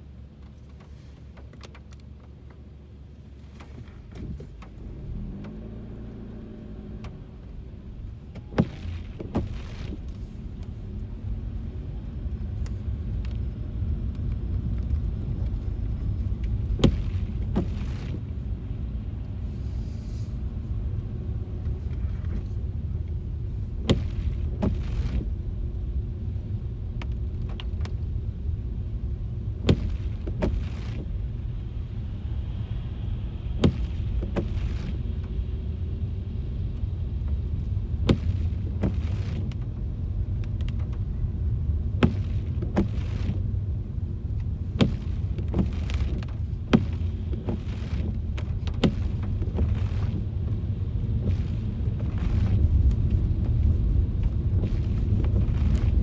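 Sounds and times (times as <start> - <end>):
car driving on wet streets: 0.0 - 56.0
windshield wiper knocks: 8.3 - 10.2, 16.4 - 18.3, 23.8 - 25.3, 29.6 - 31.2, 33.6 - 35.4, 38.0 - 39.8, 41.8 - 43.4, 44.4 - 56.0.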